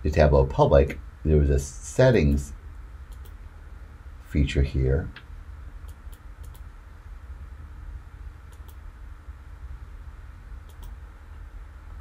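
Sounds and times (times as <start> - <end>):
low room hum: 0.0 - 12.0
computer mouse clicks: 3.1 - 3.4, 5.8 - 6.7, 8.5 - 8.8, 10.6 - 11.0.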